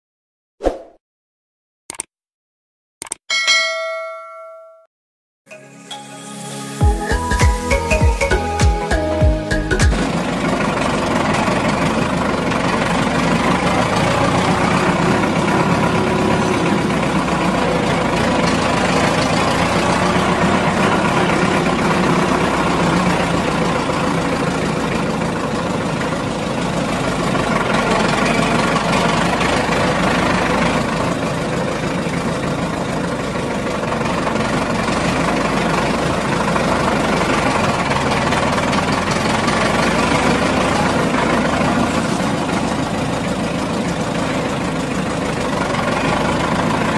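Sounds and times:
truck engine idling: 6.8s - 46.9s.

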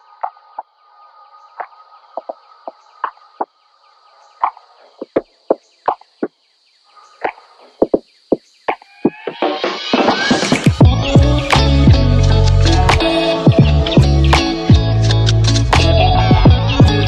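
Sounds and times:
footsteps on tiled floor: 1.6s - 3.5s, 4.4s - 6.3s
background music: 9.1s - 17.0s.

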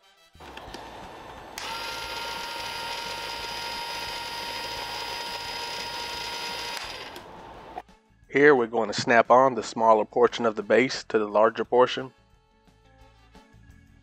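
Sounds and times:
small motor whirring: 0.4s - 7.8s.

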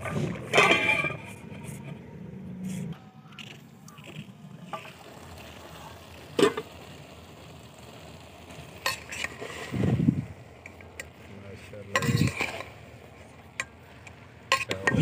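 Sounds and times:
low steady background noise: 0.0s - 15.0s
pot lid metallic clank: 0.5s - 1.3s, 11.9s - 12.6s.

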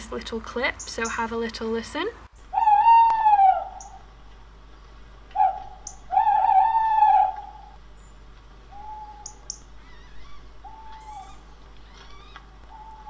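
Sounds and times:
owls hooting: 2.4s - 4.2s, 5.3s - 7.8s, 8.7s - 13.0s.

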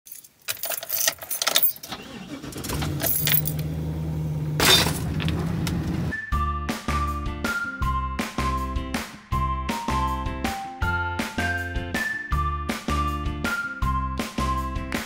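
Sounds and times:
keys jangling: 0.1s - 1.9s, 2.8s - 3.7s
van engine starting and idling: 1.8s - 6.1s.

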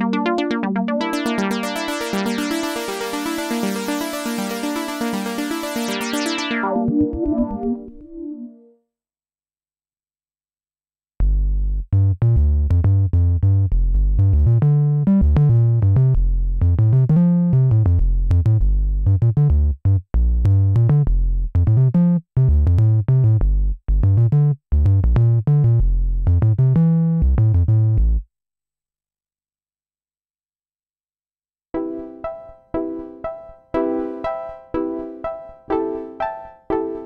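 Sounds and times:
synthesizer bass line: 0.0s - 8.8s.

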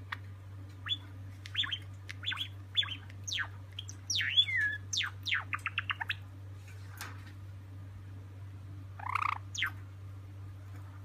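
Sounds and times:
steady low hum: 0.0s - 11.0s
sparrow chirping and whistling: 0.8s - 6.2s, 9.0s - 9.8s.

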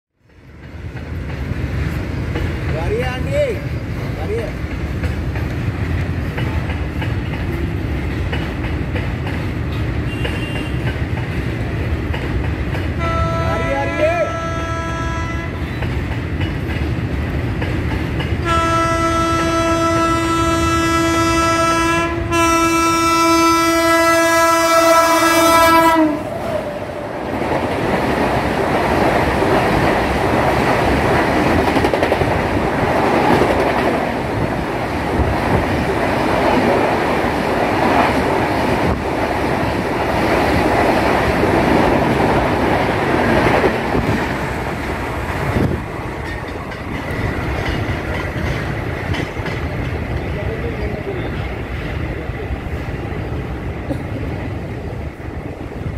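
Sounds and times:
express train passing: 0.2s - 55.9s
train horn blasts: 10.1s - 10.9s, 13.0s - 15.6s, 18.4s - 26.4s.

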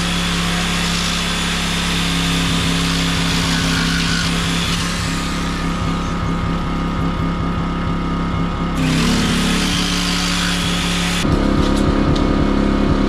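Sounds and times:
jigsaw cutting wood: 0.0s - 6.8s, 8.8s - 11.3s
motor hum: 0.0s - 13.0s.

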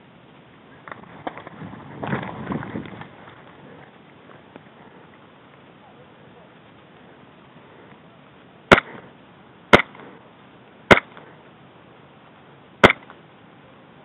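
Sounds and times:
airsoft gun shots: 8.7s - 9.1s, 9.7s - 10.1s, 10.9s - 11.3s, 12.8s - 13.2s.

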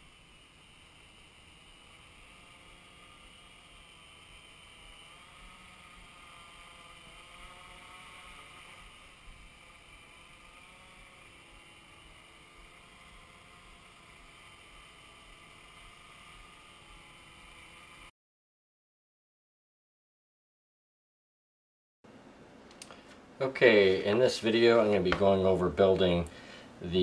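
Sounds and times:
drone motors whirring: 0.0s - 18.1s.

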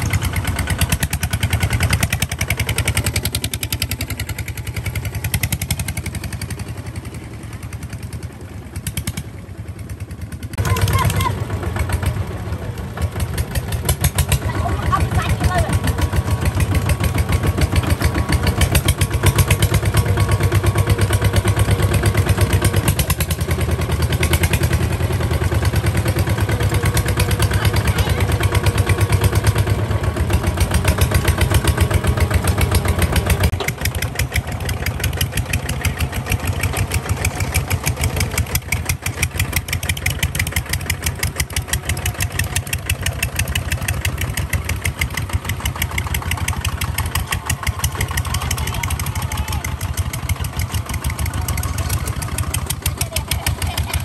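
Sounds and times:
diesel engine chugging: 0.0s - 54.0s.

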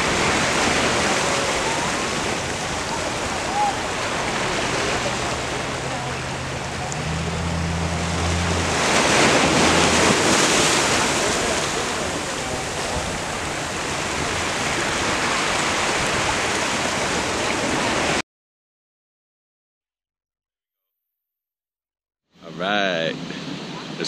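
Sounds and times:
low hum: 0.0s - 12.1s
waves washing over rocks: 0.0s - 18.2s.

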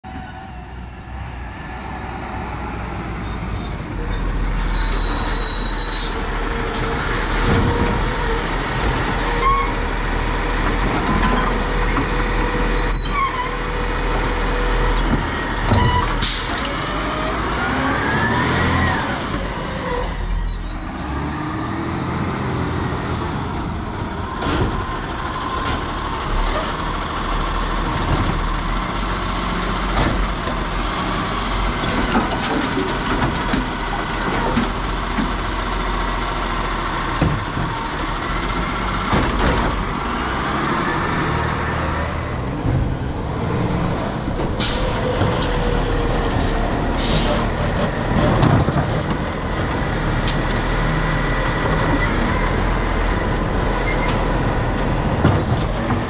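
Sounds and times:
air brakes hissing: 44.5s - 47.4s.

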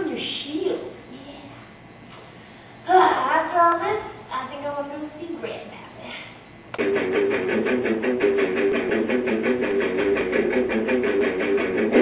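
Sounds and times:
guitar playing repeating notes: 6.8s - 12.0s.

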